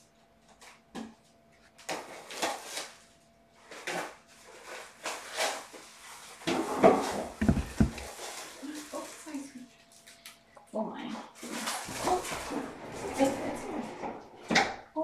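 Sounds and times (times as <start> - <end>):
bump: 7.3 - 8.1.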